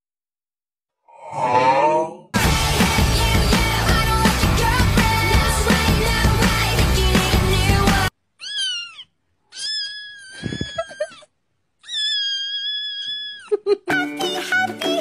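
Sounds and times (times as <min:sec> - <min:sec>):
music: 0:02.4 - 0:08.1, 0:13.9 - 0:15.0
kitten mewing: 0:08.4 - 0:13.6.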